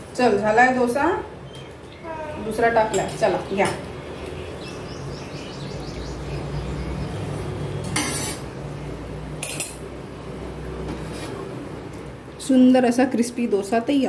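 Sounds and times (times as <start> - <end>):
metal spatula scraping plate: 7.8 - 8.5.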